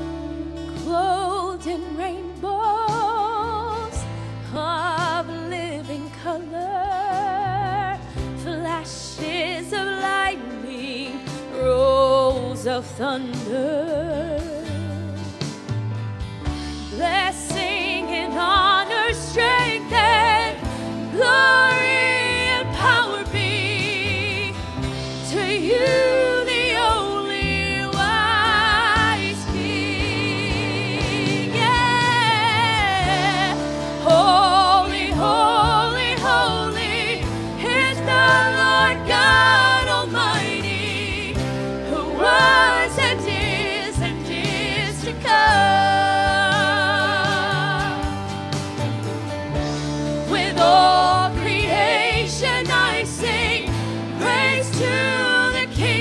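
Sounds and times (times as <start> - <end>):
band with guitars bass and drums: 0.0 - 56.0
singers in harmony: 16.9 - 48.6, 50.0 - 56.0.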